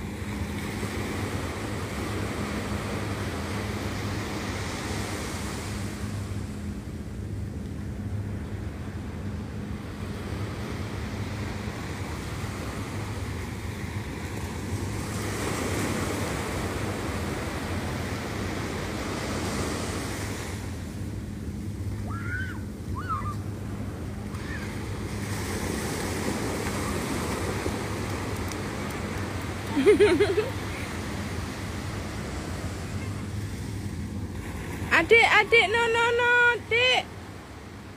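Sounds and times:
child crying out: 22.0 - 23.4, 24.4 - 24.8
surf breaking on beach: 24.2 - 36.5.

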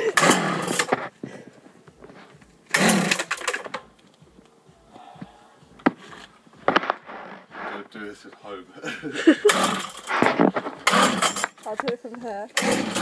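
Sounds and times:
recoil starter pull rasp: 0.2 - 1.0, 2.7 - 3.7, 9.4 - 11.6, 12.6 - 13.0.

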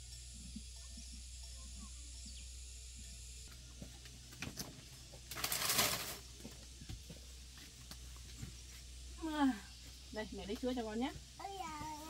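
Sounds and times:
faint outdoor background: 0.0 - 12.0
bamboo door panel scraping rustle: 4.5 - 6.2.

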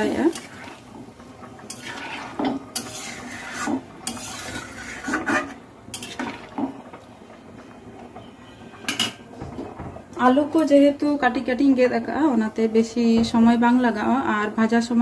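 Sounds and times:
spatula scraping a pan: 0.0 - 6.6.

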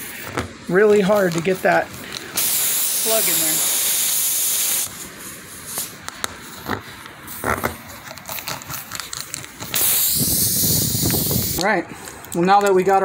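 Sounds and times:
loud steady hiss: 0.0 - 13.0
rubber scraping: 6.5 - 9.8.

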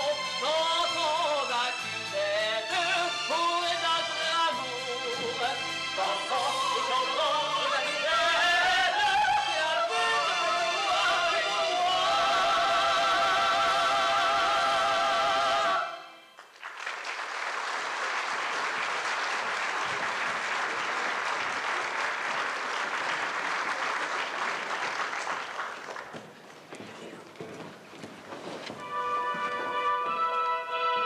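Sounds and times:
operatic voices singing: 0.4 - 16.2
audience applause: 16.4 - 27.4.

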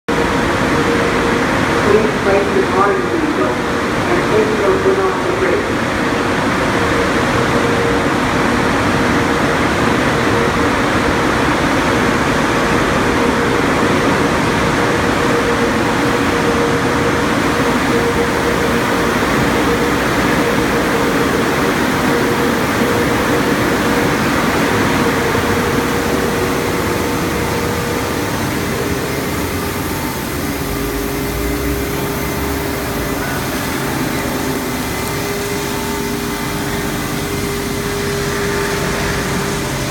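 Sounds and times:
machinery hum: 0.1 - 39.9
spraying water rushing: 0.2 - 39.9.

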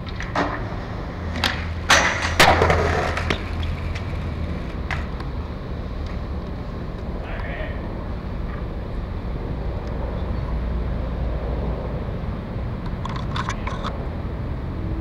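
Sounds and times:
skateboard slams: 0.0 - 5.2
skateboard clacking on concrete: 0.0 - 5.4
skateboard rattling roll: 0.0 - 7.2, 12.8 - 14.0.

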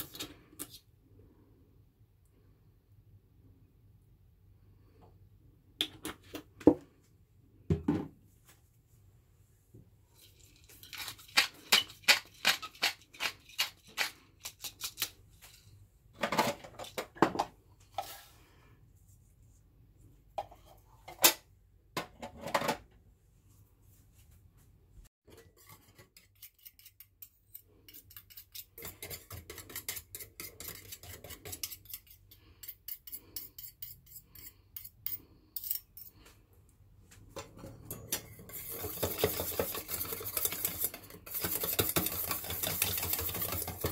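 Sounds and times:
metal utensil scraping cookware: 25.3 - 36.2, 37.4 - 43.9.

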